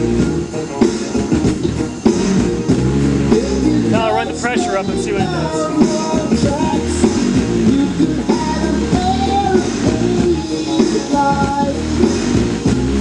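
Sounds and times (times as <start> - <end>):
pop-rock song with vocals: 0.0 - 13.0.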